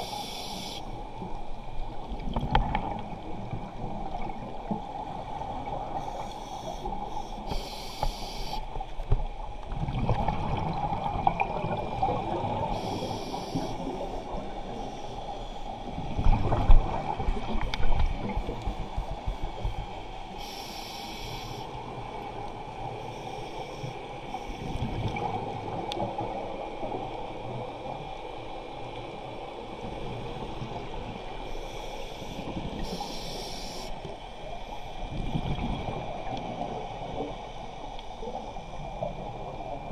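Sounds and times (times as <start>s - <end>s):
regulator hissing inhalations: 0.0s - 0.9s, 6.0s - 8.6s, 12.7s - 13.9s, 20.4s - 21.7s, 31.5s - 34.1s.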